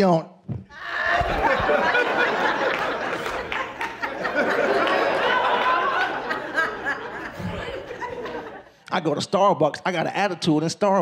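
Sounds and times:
crowd laughing: 0:00.7 - 0:08.8.

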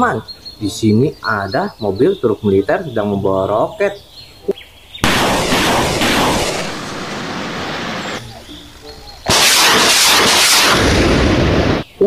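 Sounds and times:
rocket launch blast: 0:05.0 - 0:08.2, 0:09.3 - 0:11.8.

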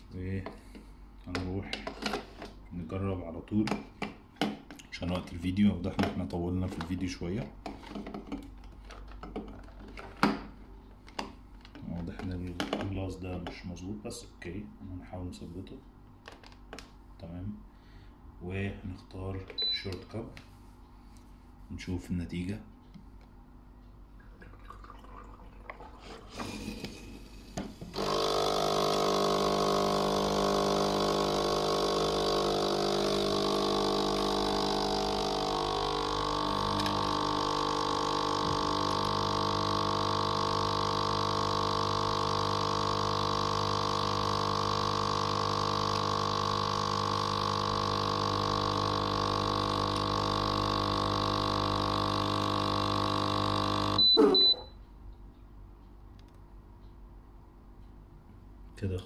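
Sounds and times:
coffee machine pump running: 0:25.9 - 0:54.6.

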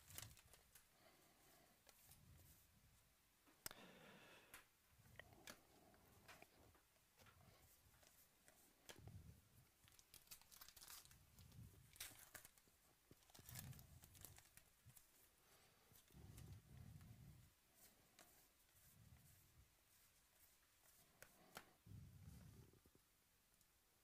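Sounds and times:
cards rustling: 0:00.0 - 0:00.9, 0:09.7 - 0:15.2
wrapper tearing and crinkling: 0:09.8 - 0:12.6, 0:13.2 - 0:14.7.

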